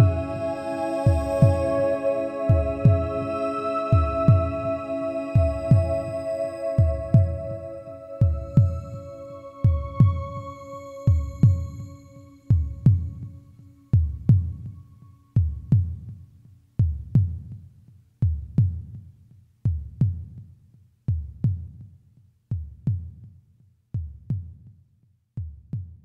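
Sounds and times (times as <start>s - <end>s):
heartbeat low thumps: 0.0s - 0.5s, 1.1s - 1.8s, 2.5s - 3.3s, 3.9s - 4.8s, 5.4s - 10.5s, 11.1s - 11.9s, 12.5s - 13.4s, 14.0s - 14.7s
held tone: 0.0s - 13.1s.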